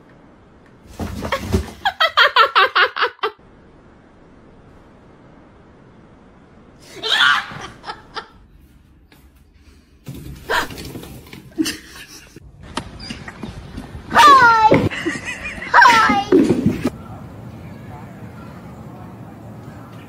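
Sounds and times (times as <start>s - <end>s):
person laughing: 6.9s - 8.4s, 11.5s - 12.4s, 14.9s - 16.0s
high-pitched vocal outburst: 14.1s - 14.9s, 15.6s - 16.5s.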